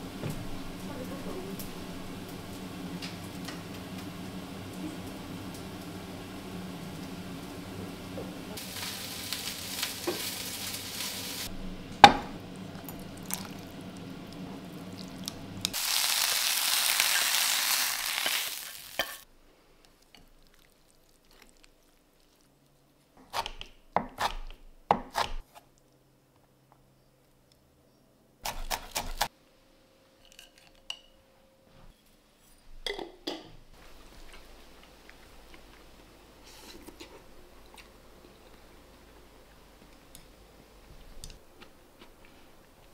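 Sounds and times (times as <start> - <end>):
low kitchen hum: 0.0 - 42.9
hot pan sizzling: 1.5 - 19.3.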